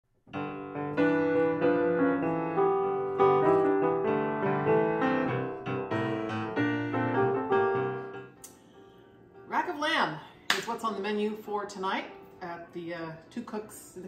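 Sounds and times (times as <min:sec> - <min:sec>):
solo piano music: 0:00.3 - 0:09.5.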